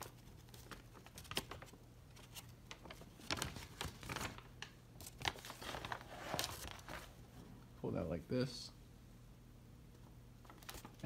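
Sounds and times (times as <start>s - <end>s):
paper rustling and crinkling: 0.0s - 7.2s, 10.4s - 11.0s.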